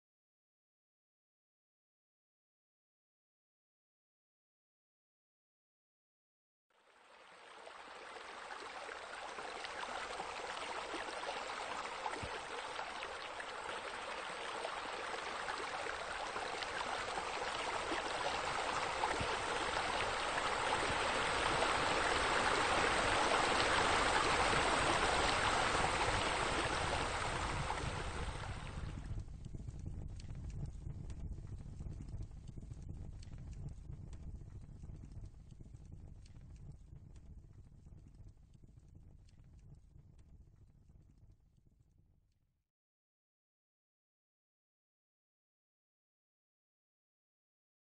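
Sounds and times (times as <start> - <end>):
running splashing water: 6.9 - 29.1
low rumble: 28.3 - 37.6.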